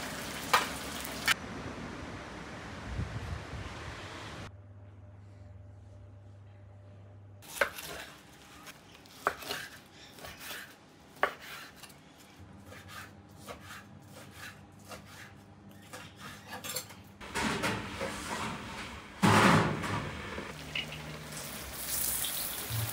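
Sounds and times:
knife scraping: 7.4s - 17.2s.

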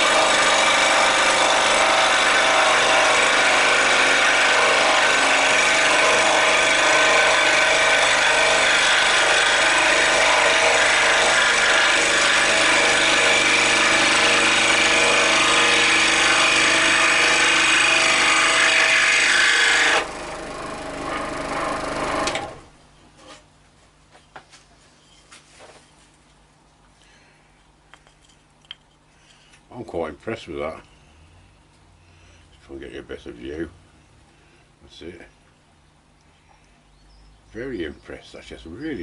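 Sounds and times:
scroll saw cutting wood: 0.0s - 22.7s.

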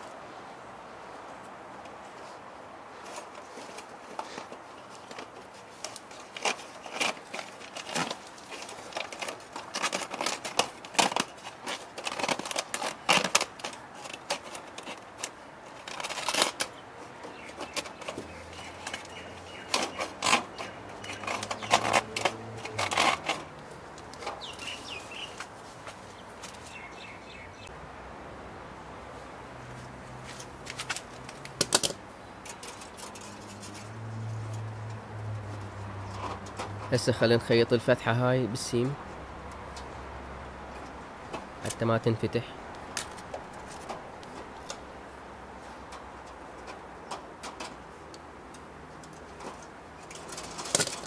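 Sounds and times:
wire mesh rattling and clicking: 5.0s - 24.7s, 30.6s - 35.0s, 45.8s - 51.0s.

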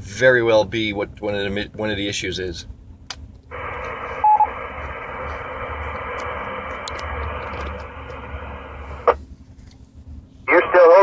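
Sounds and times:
radio speaker hissing: 3.5s - 9.2s, 10.5s - 11.0s.

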